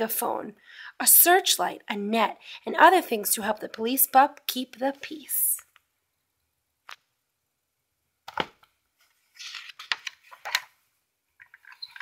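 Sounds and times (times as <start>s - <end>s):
rustling scrape: 9.0s - 10.4s.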